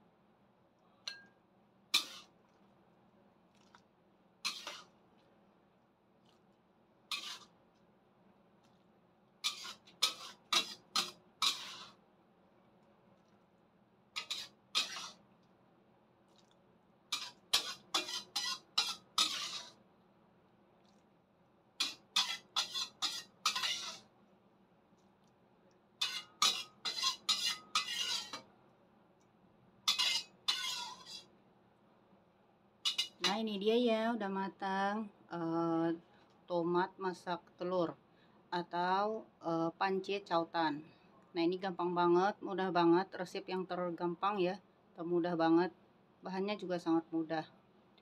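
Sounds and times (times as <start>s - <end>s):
ladle scraping metal pan: 2.0s - 2.4s, 4.4s - 4.9s, 7.1s - 7.5s, 9.4s - 12.0s, 14.2s - 15.2s, 17.1s - 19.8s, 21.8s - 24.0s, 26.0s - 28.5s, 29.9s - 31.3s, 32.9s - 33.4s.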